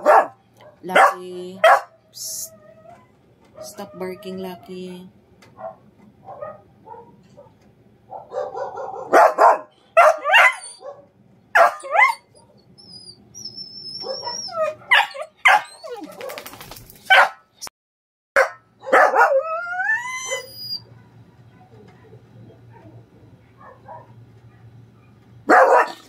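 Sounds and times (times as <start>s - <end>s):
dog whining howl: 2.3s - 4.5s, 10.2s - 11.0s, 11.7s - 16.3s, 18.8s - 21.0s
small dog yipping: 8.2s - 11.0s, 11.6s - 17.3s, 18.8s - 21.1s.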